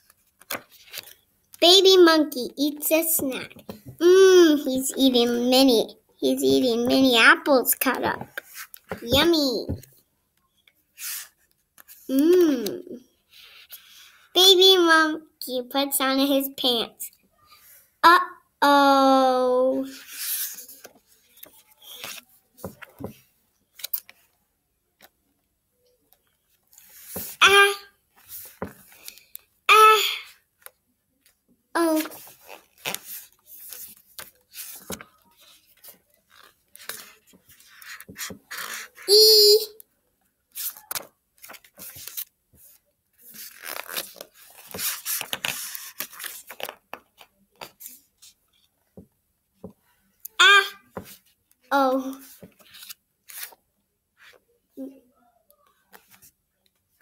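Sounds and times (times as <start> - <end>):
book page turning: 0.0 - 1.2, 7.8 - 9.9, 19.9 - 24.3, 30.6 - 39.1, 40.5 - 48.7, 52.0 - 53.6
child exclaiming: 18.0 - 19.9, 27.4 - 27.9, 29.7 - 30.3, 31.8 - 32.1, 39.1 - 39.8, 50.4 - 50.8.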